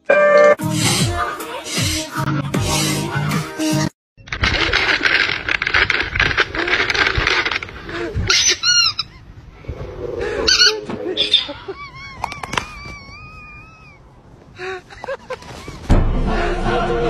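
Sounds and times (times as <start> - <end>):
plastic bag crinkling: 4.3 - 7.8.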